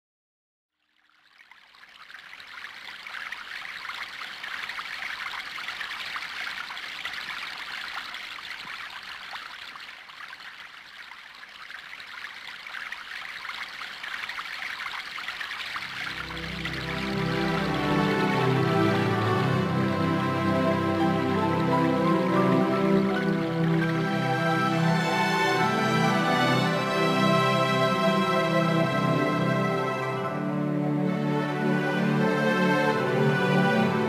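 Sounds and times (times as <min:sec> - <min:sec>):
stream water rushing: 0:01.4 - 0:34.0
soft music: 0:15.8 - 0:34.0.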